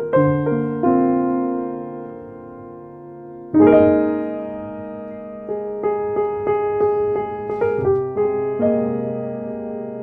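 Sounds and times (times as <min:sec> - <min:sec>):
piano music: 0:00.0 - 0:10.0.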